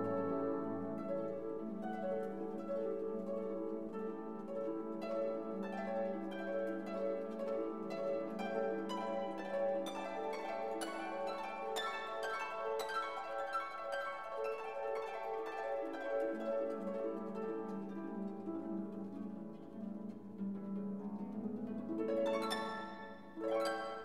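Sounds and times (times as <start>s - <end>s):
plucked notes: 0.0s - 24.0s.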